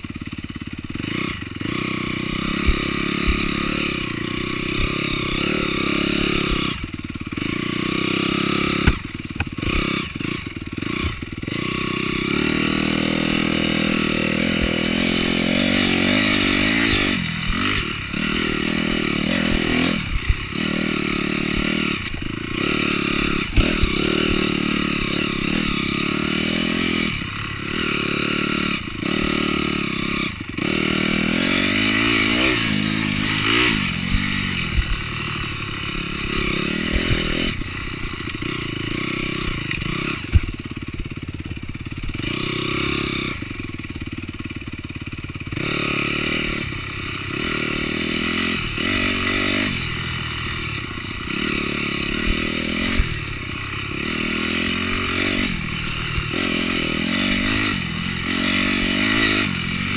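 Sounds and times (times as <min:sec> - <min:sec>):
motocross bike engine revving: 0:00.0 - 0:59.9
sharp knocks from bike: 0:08.7 - 0:09.6, 0:39.7 - 0:40.6.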